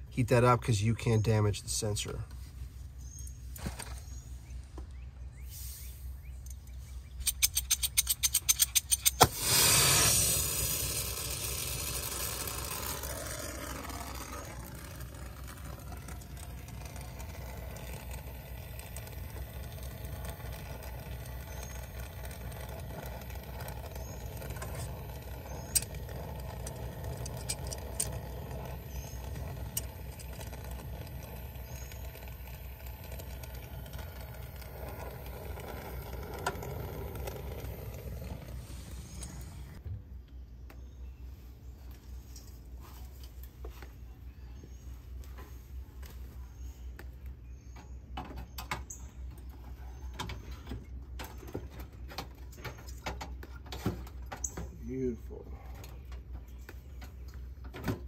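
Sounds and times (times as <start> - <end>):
torch flame hissing: 9.1 - 39.8.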